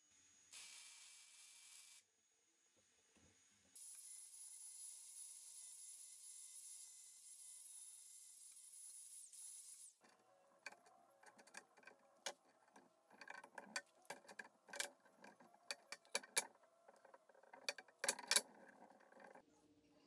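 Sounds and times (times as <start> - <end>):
metal clicks and knocks: 10.0 - 19.4
angle grinder on steel: 10.6 - 19.4.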